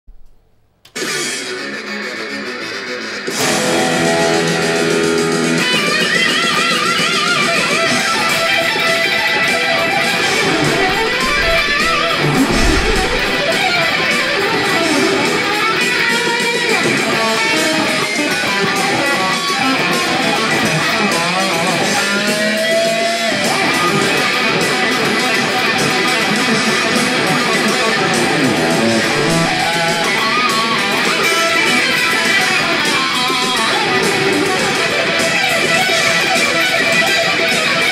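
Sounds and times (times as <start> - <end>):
electric guitar solo: 27.9 - 31.0.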